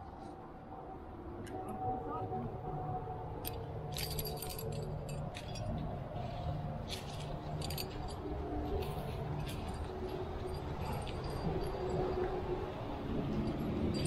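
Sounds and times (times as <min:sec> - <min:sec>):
climbing gear clinking: 0:03.4 - 0:14.0.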